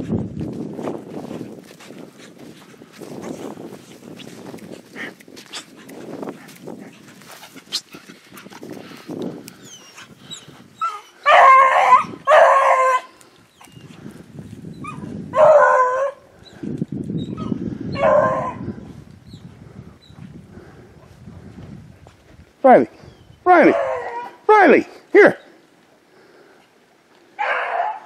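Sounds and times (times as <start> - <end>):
dog yipping: 9.7 - 13.8, 23.6 - 24.4, 27.4 - 28.0
dog baying: 23.6 - 24.4.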